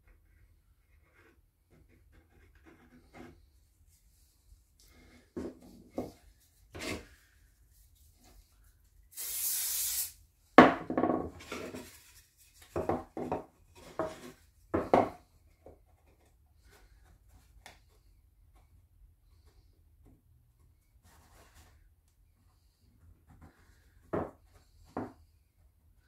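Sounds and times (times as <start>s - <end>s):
aerosol can spraying: 9.1s - 10.2s
wooden pieces knocking on bench: 10.6s - 11.4s, 12.7s - 15.2s.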